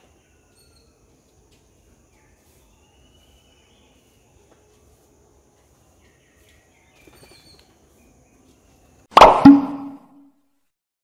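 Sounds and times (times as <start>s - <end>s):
distant bird calls: 5.6s - 8.9s.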